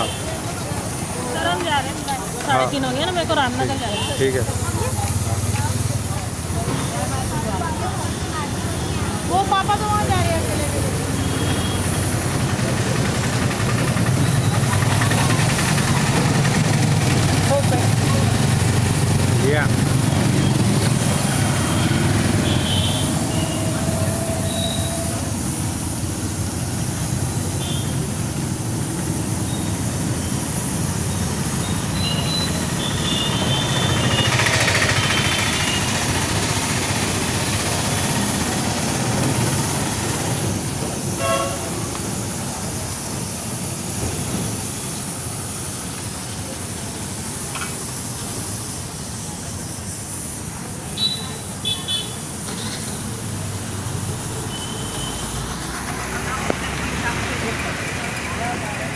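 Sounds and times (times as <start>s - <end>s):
traffic rumble: 0.0s - 58.9s.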